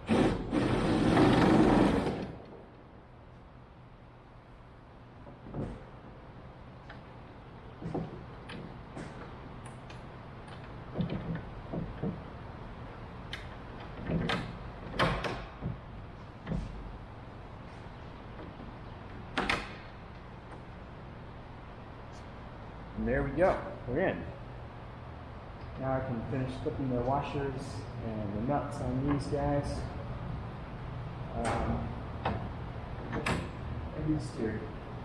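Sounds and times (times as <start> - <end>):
wooden parts knocking and clunking: 5.2 - 6.0, 7.8 - 12.6, 13.3 - 16.9.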